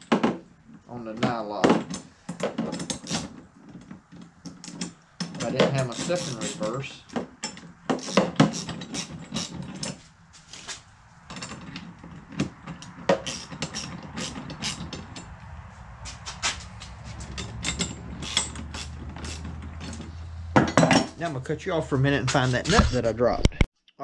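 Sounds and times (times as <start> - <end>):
ratchet wrench clicking: 5.7 - 6.6, 7.9 - 9.6, 13.1 - 15.3, 16.6 - 20.0.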